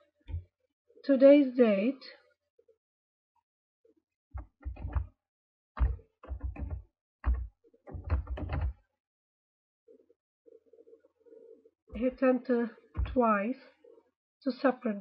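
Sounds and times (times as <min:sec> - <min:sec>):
keyboard typing: 0:04.4 - 0:05.1, 0:05.8 - 0:08.8, 0:13.0 - 0:13.3.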